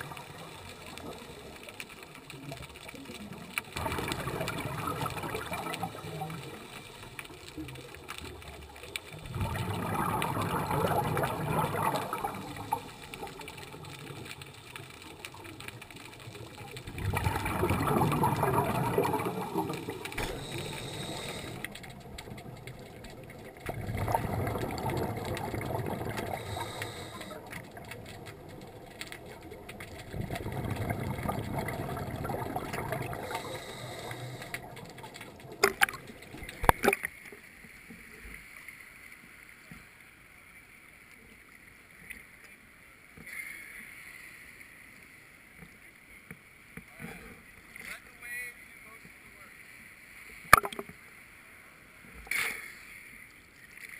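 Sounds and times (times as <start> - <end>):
diver's exhaled bubbles underwater: 0.0 - 37.1
water murmur: 0.0 - 37.3.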